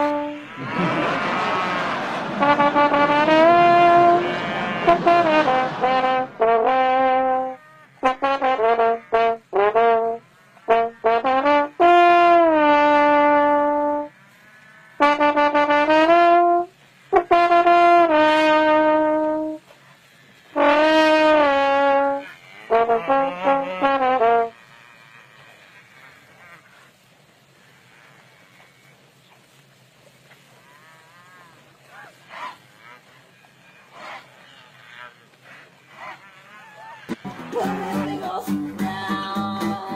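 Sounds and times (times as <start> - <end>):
solo trombone melody: 0.0 - 14.3, 14.9 - 24.7.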